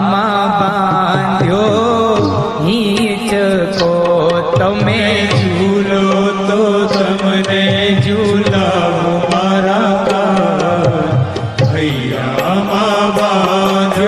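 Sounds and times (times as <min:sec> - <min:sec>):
instrumental melody: 0:00.7 - 0:14.0
hand drum ticks: 0:03.8 - 0:05.6, 0:06.8 - 0:14.0
steady drone: 0:10.0 - 0:14.0.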